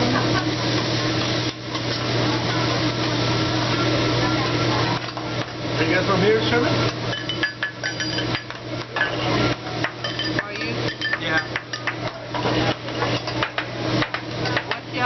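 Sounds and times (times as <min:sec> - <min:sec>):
metal spatula clinking on griddle: 0:07.1 - 0:09.2, 0:09.8 - 0:13.6.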